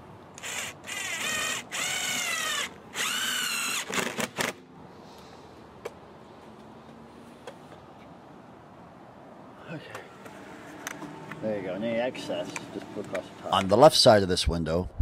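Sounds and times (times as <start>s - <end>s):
cordless drill driving screw: 0.4s - 4.6s.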